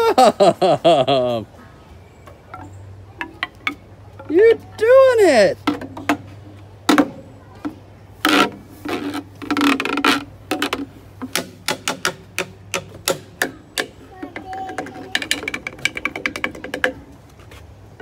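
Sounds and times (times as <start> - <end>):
mallet tapping wooden guiro: 2.5 - 4.6, 9.4 - 17.1.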